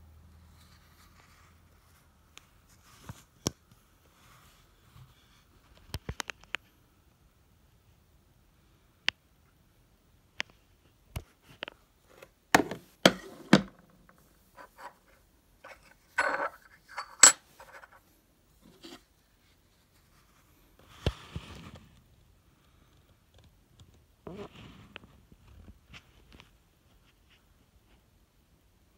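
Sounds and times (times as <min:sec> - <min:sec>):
coin handling clicks and knocks: 0:12.6 - 0:18.0.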